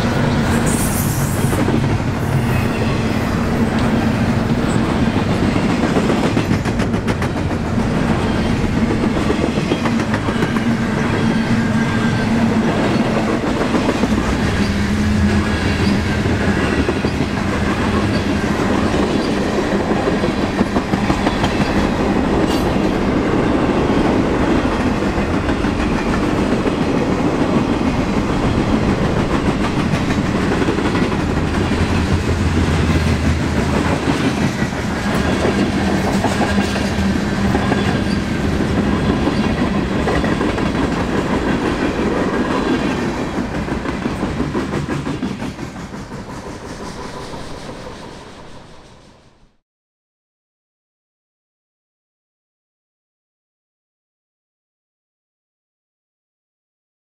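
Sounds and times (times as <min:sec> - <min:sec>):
freight train wheels rumbling: 0:00.0 - 0:49.6
clickety-clack over rail joints: 0:03.6 - 0:10.8, 0:12.4 - 0:23.4, 0:24.0 - 0:48.9.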